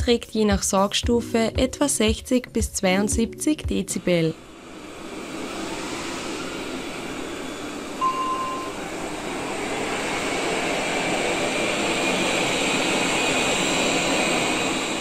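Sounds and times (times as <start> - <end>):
short beep: 8.0 - 8.8.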